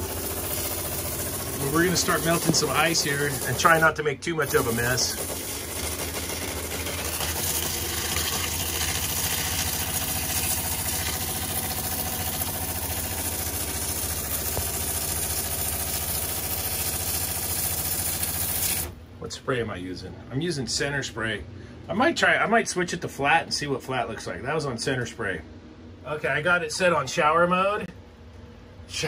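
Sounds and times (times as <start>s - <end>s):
water spraying hiss: 0.0s - 12.6s
low steady hum: 18.9s - 29.0s.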